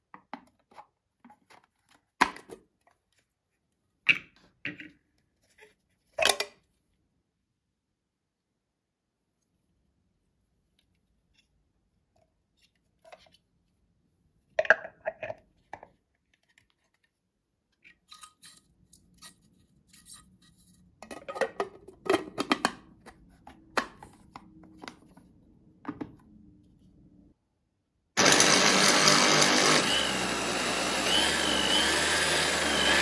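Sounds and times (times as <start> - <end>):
plastic parts knocking and clicking: 21.0 - 25.2.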